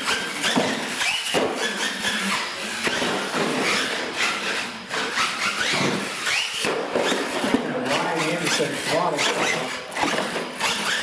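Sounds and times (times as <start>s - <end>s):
rc truck motor whine: 0.0s - 11.0s.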